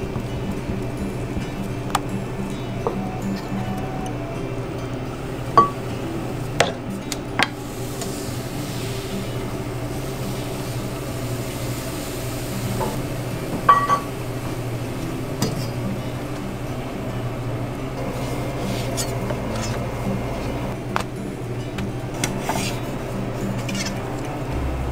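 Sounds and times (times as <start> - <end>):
steady low hum: 0.0 - 24.9
metal utensils clinking: 1.5 - 17.3.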